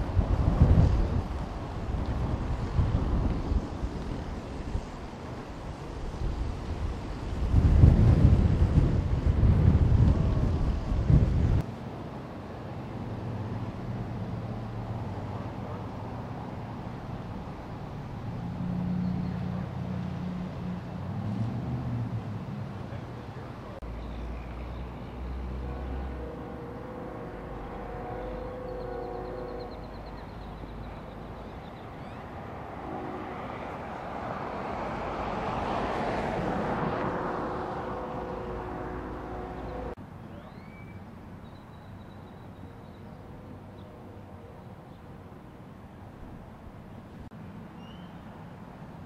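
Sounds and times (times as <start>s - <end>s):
outdoor background noise: 0.0s - 49.0s
vehicle passing: 13.0s - 28.6s, 30.6s - 40.0s.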